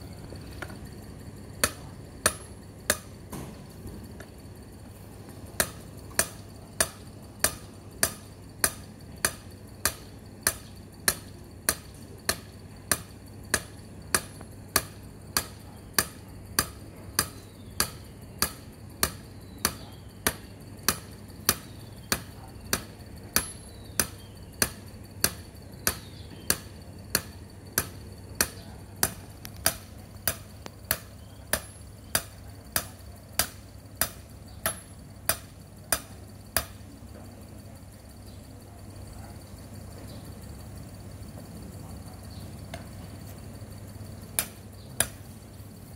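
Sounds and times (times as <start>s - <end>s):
hammer striking metal rod: 1.6s - 3.5s, 5.6s - 36.8s, 44.4s - 45.2s.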